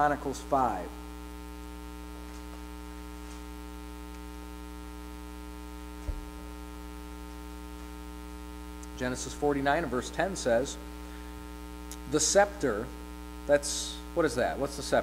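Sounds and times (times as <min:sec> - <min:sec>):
electrical mains hum: 0:00.0 - 0:15.0
short low thump: 0:06.0 - 0:06.4.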